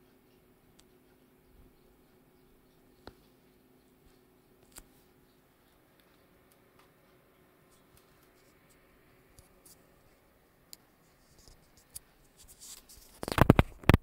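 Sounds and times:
scratchy rustling: 0:11.0 - 0:14.0.

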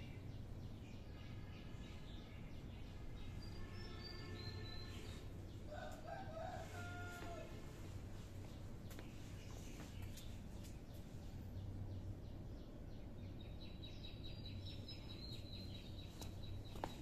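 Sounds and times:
faint bird chirps: 0:00.0 - 0:05.9
steady low hum: 0:04.6 - 0:17.0.

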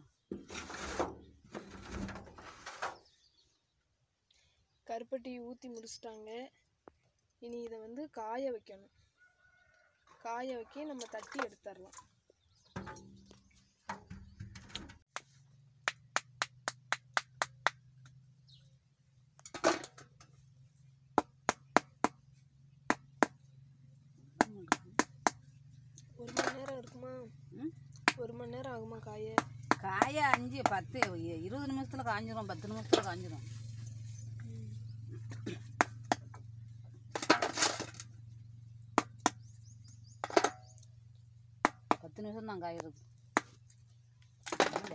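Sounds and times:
coconut shell moulds tapping: 0:21.2 - 0:22.2, 0:22.9 - 0:23.4, 0:24.4 - 0:25.4, 0:39.0 - 0:39.5, 0:41.6 - 0:42.1.

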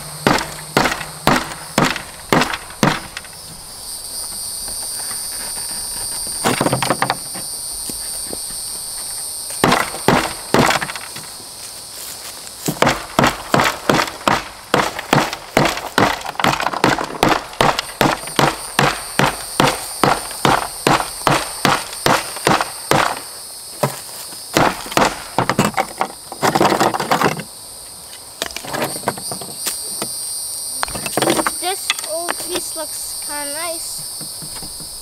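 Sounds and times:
hammer blows breaking mortar: 0:00.0 - 0:03.4, 0:09.6 - 0:11.1, 0:12.7 - 0:23.3.

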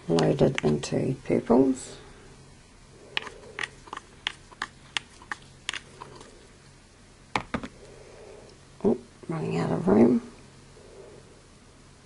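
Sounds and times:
paintbrush tapping face paint: 0:03.2 - 0:06.3.

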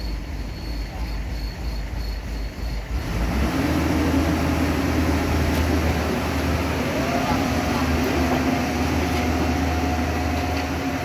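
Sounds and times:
combine harvester engine running: 0:00.0 - 0:11.0.

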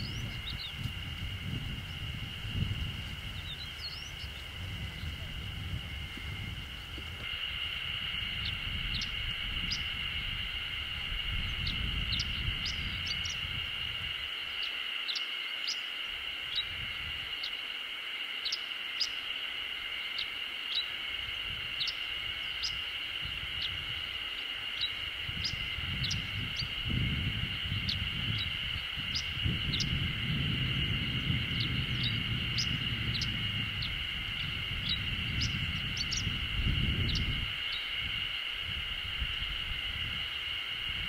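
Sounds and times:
steady high-pitched drone: 0:00.0 - 0:41.0.

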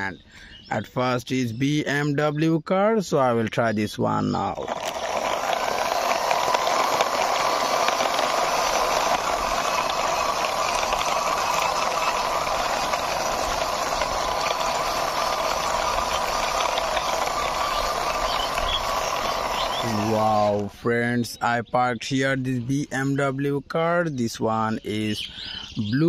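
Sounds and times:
toy car rattling on concrete: 0:04.2 - 0:20.7.

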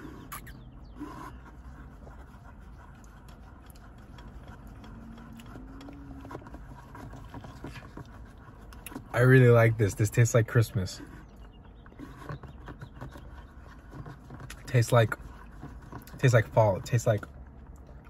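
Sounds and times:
low hum inside car: 0:00.0 - 0:11.8.

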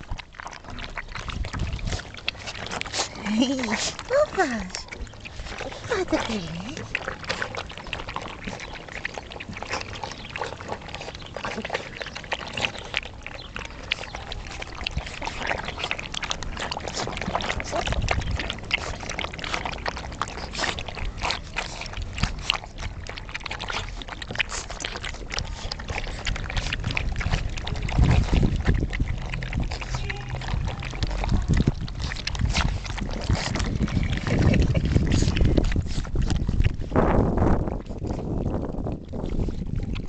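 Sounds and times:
puppies lapping milk: 0:00.0 - 0:40.0
low rumbling bumps on camera: 0:25.4 - 0:40.0.

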